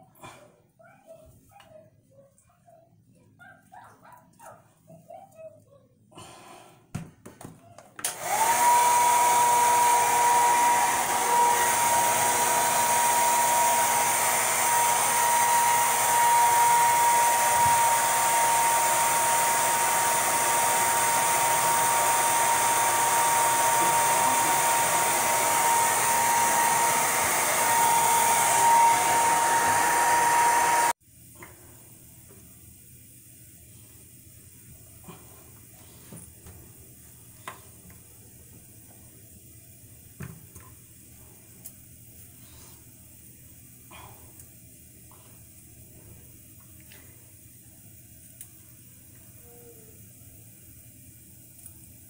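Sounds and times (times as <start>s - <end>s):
hair dryer running: 8.0s - 31.0s.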